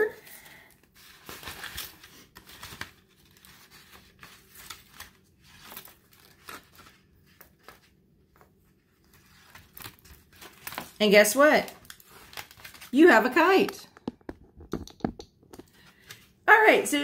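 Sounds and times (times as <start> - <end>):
paper rustling and crinkling: 0.7 - 14.6.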